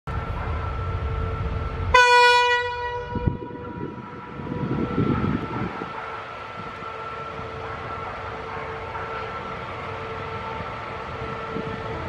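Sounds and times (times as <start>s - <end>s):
low rail rumble: 0.1s - 12.0s
train horn blast: 1.9s - 5.4s.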